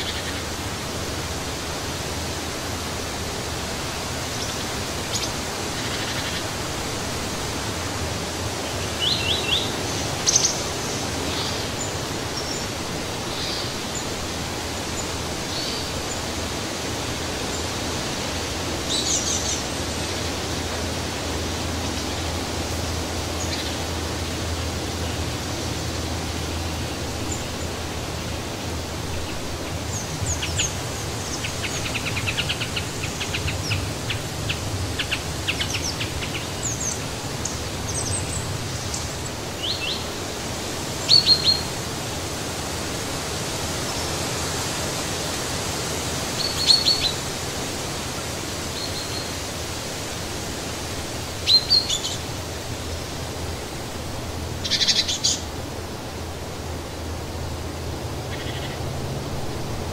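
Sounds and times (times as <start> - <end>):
wind through trees: 0.0 - 59.9
birds chirping: 7.7 - 40.3, 54.5 - 55.5.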